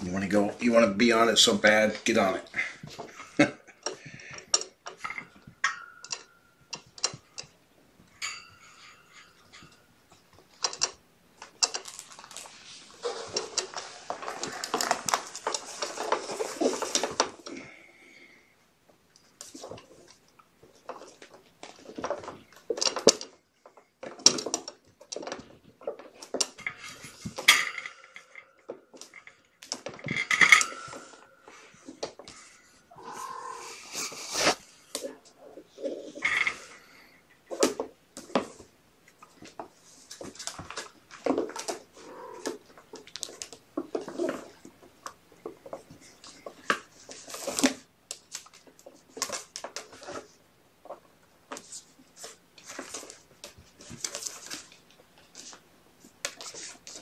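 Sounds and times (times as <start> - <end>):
plastic clicks and clatters: 10.3 - 12.5, 19.4 - 28.0, 37.5 - 57.0
kittens scrabbling on plastic: 10.3 - 17.7, 37.5 - 57.0.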